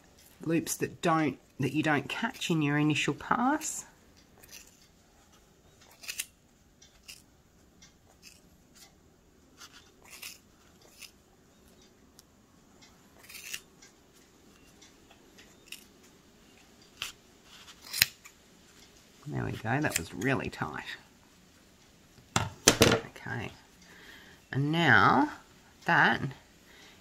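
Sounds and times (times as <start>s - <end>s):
scissors snipping yarn: 5.8s - 7.3s, 8.2s - 8.5s, 9.6s - 11.2s, 13.2s - 13.7s, 19.6s - 20.3s.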